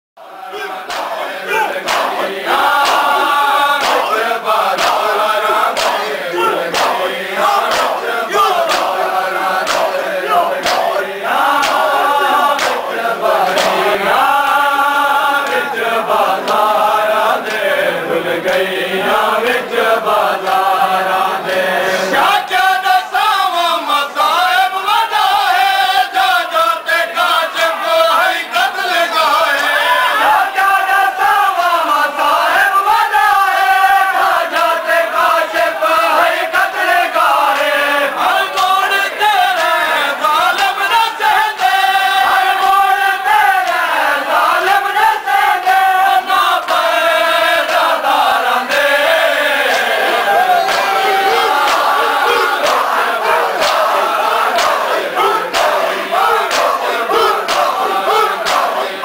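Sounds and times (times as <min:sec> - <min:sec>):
crowd of men chanting: 0:00.2 - 0:59.0
hands slapping chests: 0:00.9 - 0:01.2, 0:01.8 - 0:07.0, 0:07.6 - 0:09.0, 0:09.6 - 0:12.9, 0:13.5 - 0:13.8, 0:50.7 - 0:58.8.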